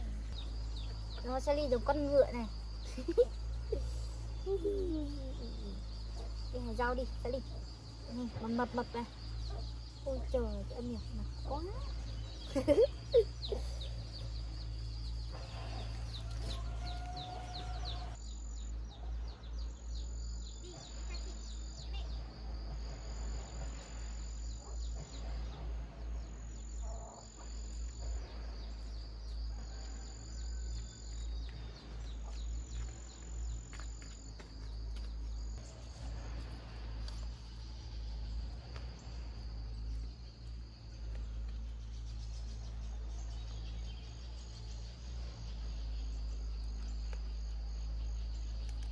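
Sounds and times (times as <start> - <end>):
bird chirps: 0.0 - 22.5, 37.1 - 48.9
insects trilling: 0.0 - 48.9
low steady rumble: 0.0 - 48.9.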